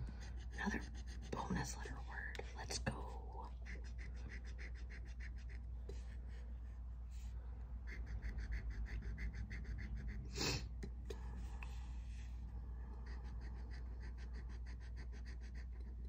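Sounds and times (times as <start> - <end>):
person sniffing: 10.3 - 12.3.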